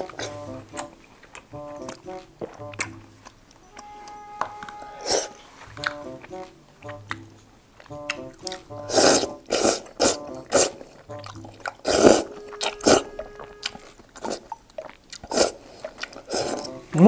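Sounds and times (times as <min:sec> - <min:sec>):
chewing: 0:00.0 - 0:17.0
quiet background music: 0:00.0 - 0:17.0
person slurping food: 0:08.4 - 0:10.9, 0:11.8 - 0:14.6, 0:15.2 - 0:16.8.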